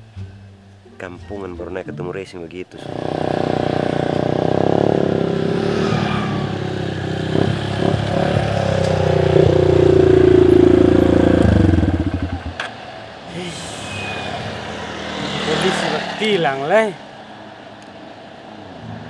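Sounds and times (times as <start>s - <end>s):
motorcycle with racing exhaust: 2.8s - 12.8s.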